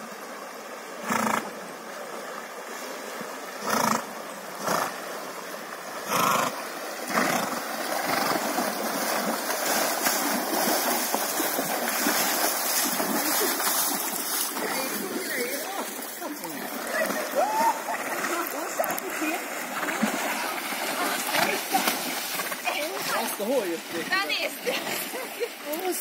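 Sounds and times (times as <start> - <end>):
water splashing: 0.0 - 26.0
horse blowing through nostrils: 6.1 - 6.5, 7.1 - 8.4.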